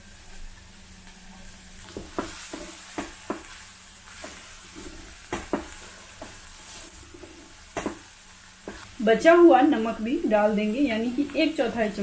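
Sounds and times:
cabbage sizzling in oil: 0:00.0 - 0:12.0
spatula knocking on pot: 0:01.9 - 0:03.6, 0:04.2 - 0:06.4, 0:07.7 - 0:08.8.

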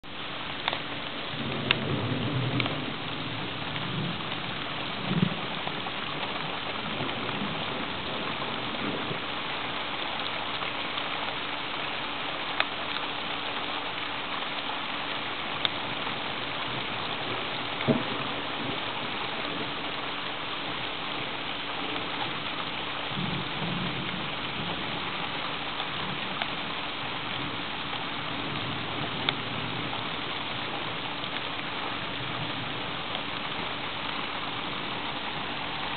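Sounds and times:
steady rain: 0:00.0 - 0:35.9
raindrop ticks: 0:00.4 - 0:35.9
thunder rumbling: 0:01.2 - 0:09.2, 0:15.9 - 0:20.0.

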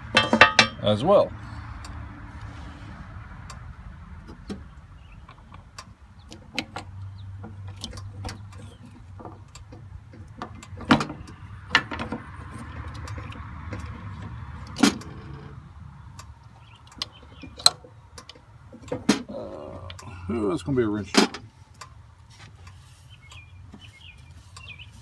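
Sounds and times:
hand tools clinking on metal: 0:00.0 - 0:01.0.

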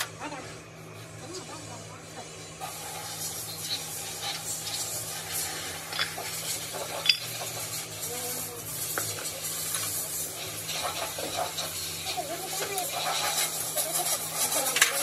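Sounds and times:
metal parts clinking and scraping: 0:05.8 - 0:07.7.

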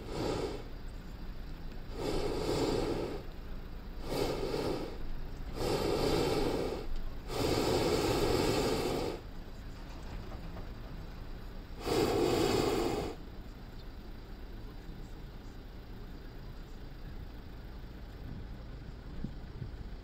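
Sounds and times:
propane burner blasts: 0:00.0 - 0:14.8.

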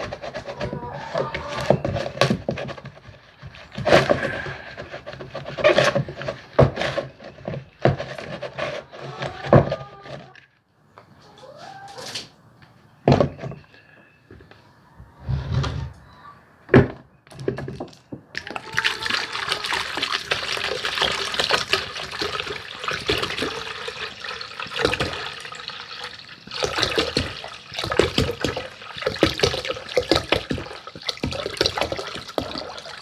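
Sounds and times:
plastic knocks and clatters: 0:00.0 - 0:10.5, 0:13.0 - 0:13.6, 0:16.7 - 0:18.6, 0:26.6 - 0:32.9.

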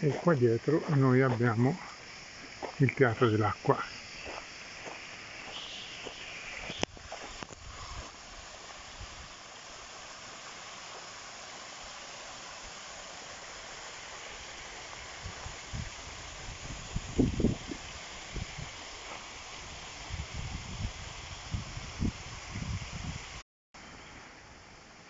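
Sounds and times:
fountain water splashing into pool: 0:06.9 - 0:23.4.

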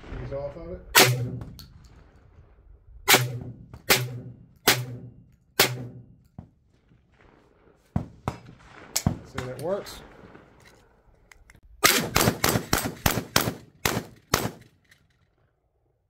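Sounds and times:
shotgun shots: 0:00.9 - 0:01.7, 0:03.1 - 0:06.2, 0:07.9 - 0:10.6, 0:11.8 - 0:14.7.

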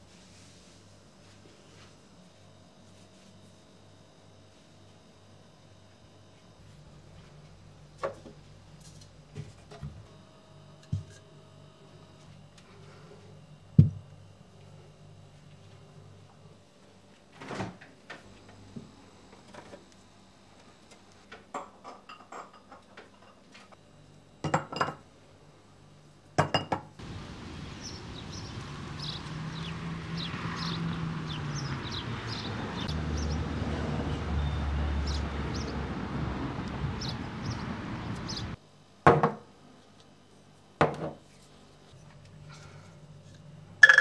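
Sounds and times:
steady hissing with low hum: 0:00.0 - 0:29.2, 0:38.5 - 0:43.8
dishes clinking: 0:21.6 - 0:23.4, 0:26.4 - 0:26.9.

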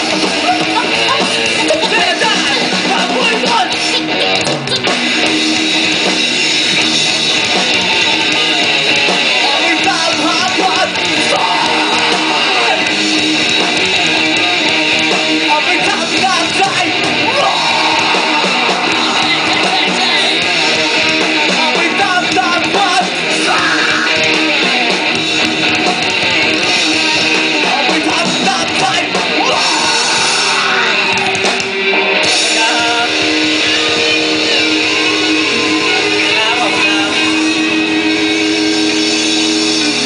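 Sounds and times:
vocals on microphone: 0:00.0 - 0:05.0, 0:15.5 - 0:24.3, 0:27.5 - 0:31.3
electric guitar: 0:00.0 - 0:40.0
hardcore band playing: 0:00.0 - 0:40.0.

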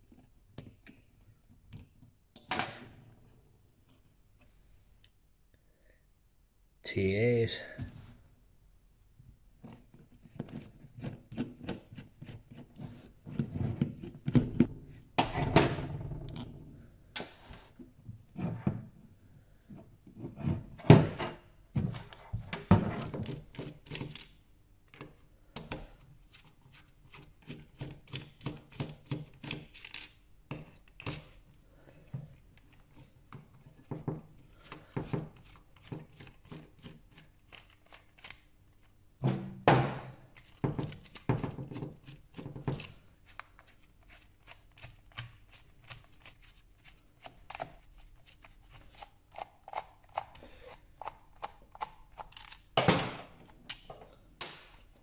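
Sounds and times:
screwdriver clicking and scraping: 0:48.7 - 0:52.6.

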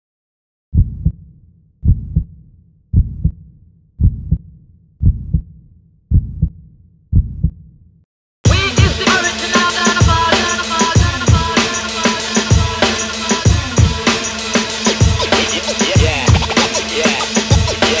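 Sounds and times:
heartbeat double thumps: 0:00.8 - 0:07.8, 0:15.9 - 0:16.7
drum-heavy music: 0:08.5 - 0:18.0.

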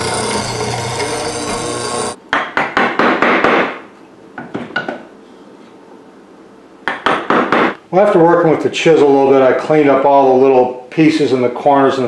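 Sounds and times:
mortiser boring into wood: 0:00.0 - 0:02.2.

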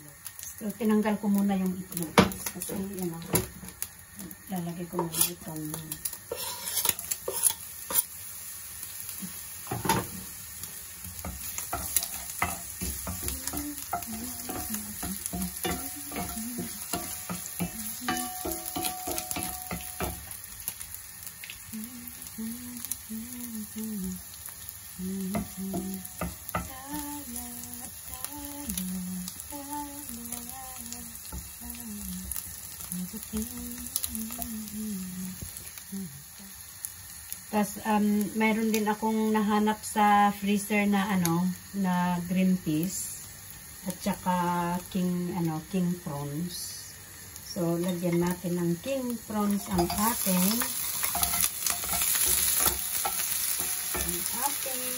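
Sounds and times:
onion sizzling in oil: 0:00.0 - 0:54.9
wooden spoon scraping pan: 0:06.3 - 0:08.1
person humming a melody: 0:12.9 - 0:19.7, 0:21.7 - 0:24.4, 0:25.0 - 0:36.5.

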